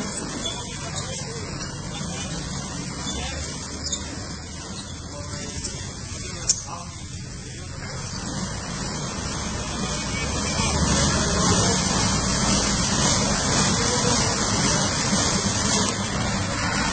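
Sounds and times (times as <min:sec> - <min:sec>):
car wash rushing hiss: 0:00.0 - 0:16.9.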